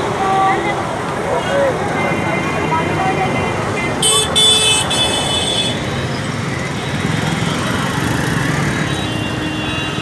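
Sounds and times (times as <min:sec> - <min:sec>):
dense city traffic: 0:00.0 - 0:10.0
loud high vehicle horn: 0:03.8 - 0:05.8.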